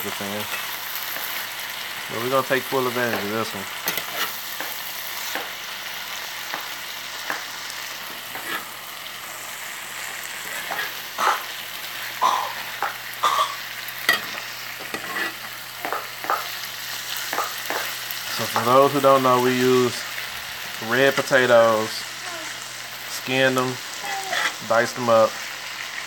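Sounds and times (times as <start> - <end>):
food sizzling in a skillet: 0.0 - 26.0
metal utensil scraping a pan: 3.1 - 5.5, 8.1 - 8.8, 10.4 - 11.5, 14.1 - 16.5, 24.2 - 24.6.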